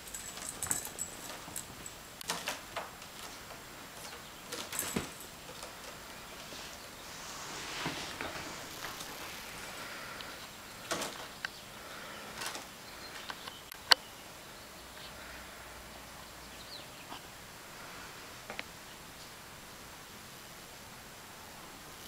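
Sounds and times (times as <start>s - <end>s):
kittens scuffling and rustling: 0.0s - 11.5s, 12.2s - 13.5s
steady background hiss: 0.0s - 22.0s.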